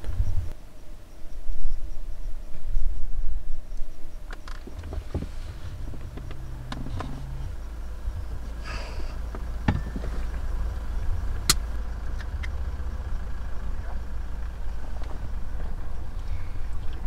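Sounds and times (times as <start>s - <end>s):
vehicle engine idling: 4.2s - 17.0s.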